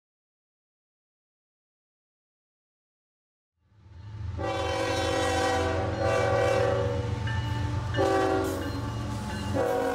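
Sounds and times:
locomotive air horn blasts: 4.4s - 7.1s, 8.0s - 8.7s, 9.5s - 9.9s.

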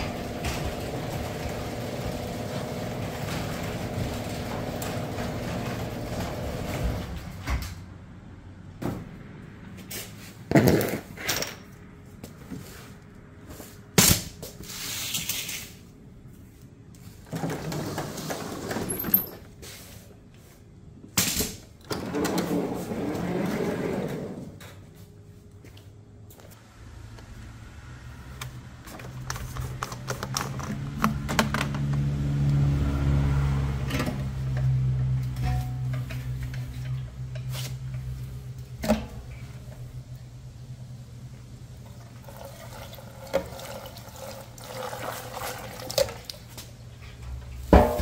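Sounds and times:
engine running: 26.7s - 41.4s
handling clicks and knocks: 28.4s - 32.1s.

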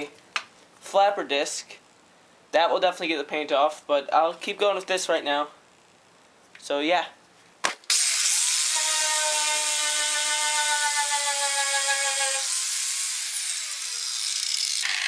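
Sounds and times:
angle grinder whine: 7.9s - 15.0s.

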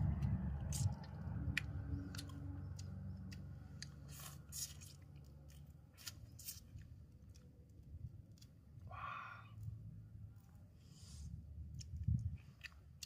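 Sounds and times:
low rumble: 0.0s - 4.4s.

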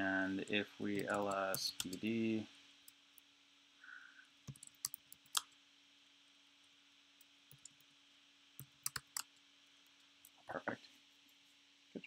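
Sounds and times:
faint steady hum: 0.0s - 12.0s
computer keyboard clicks: 0.9s - 2.0s, 4.5s - 5.4s, 8.6s - 9.3s.

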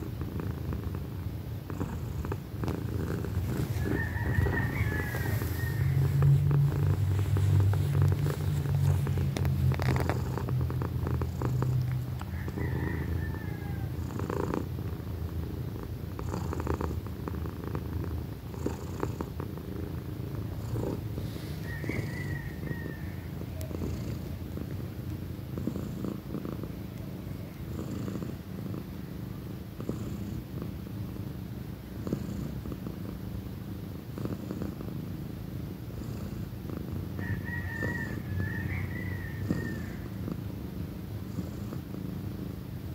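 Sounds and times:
cat purring loudly: 0.0s - 42.9s
soft rustling of fur and bedding: 1.6s - 15.1s, 15.8s - 28.8s.

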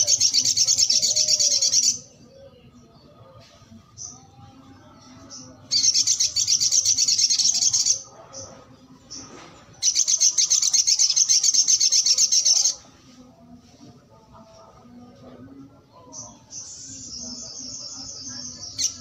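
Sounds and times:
bird singing high-pitched trills: 5.3s - 8.0s, 9.8s - 12.8s, 16.2s - 19.0s.

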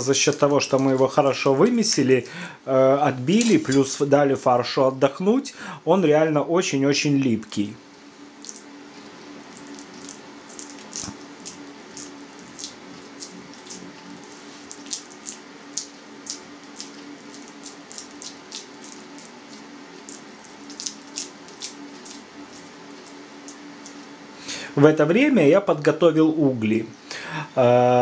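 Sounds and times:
low steady hum: 0.0s - 28.0s
wet hands smacking minced meat: 9.5s - 24.2s.

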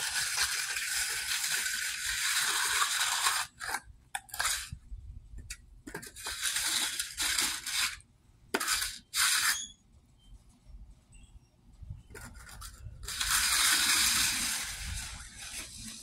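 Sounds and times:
steel tool scraping wet concrete: 0.0s - 4.8s, 5.9s - 8.0s, 8.6s - 9.7s, 12.2s - 16.0s.

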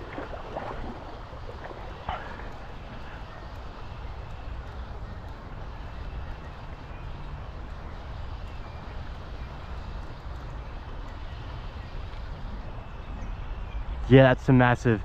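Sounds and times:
river current rushing: 0.0s - 3.4s
low uneven rumble: 0.0s - 14.1s.

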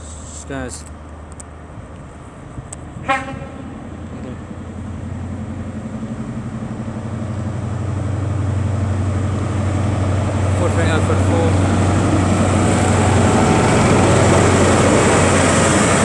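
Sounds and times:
diesel train engine drone: 0.0s - 16.0s
short train horn toot: 3.0s - 3.7s.

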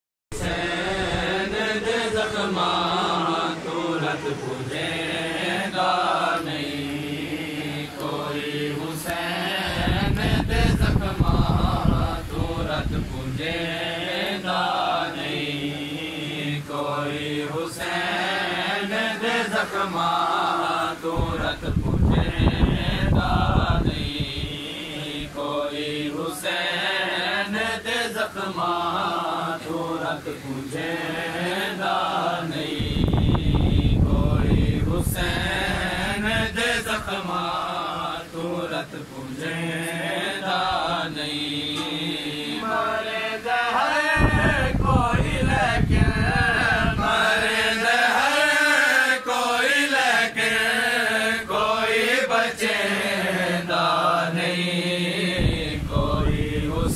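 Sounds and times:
men chanting a lament: 0.4s - 56.9s.

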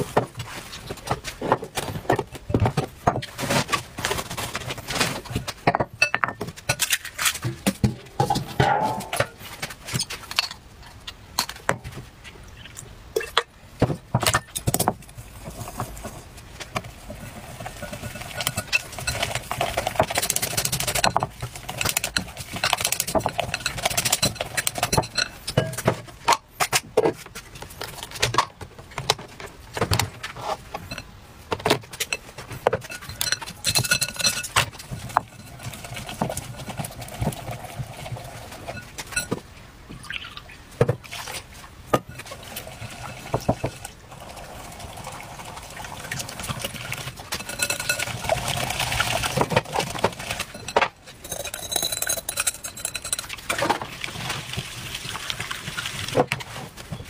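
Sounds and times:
utensils clicking on glass bowl: 17.8s - 25.9s, 32.8s - 36.4s, 47.3s - 48.3s, 50.4s - 53.6s
liquid pouring: 42.2s - 56.2s.

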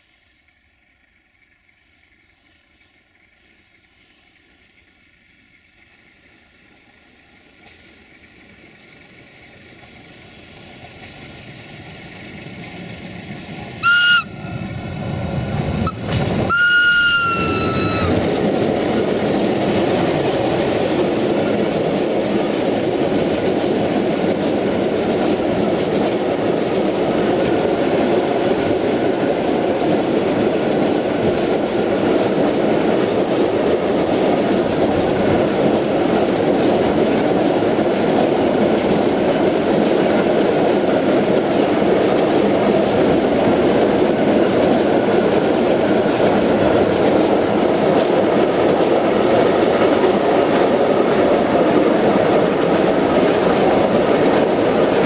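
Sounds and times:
diesel locomotive approaching: 0.0s - 55.0s
train wheels rumbling on rail: 0.0s - 55.0s
locomotive whistle blasts: 13.8s - 14.6s, 15.8s - 18.2s.

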